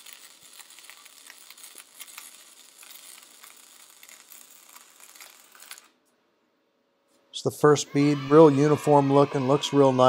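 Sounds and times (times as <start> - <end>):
welding arc crackling and sizzling: 0.0 - 6.1.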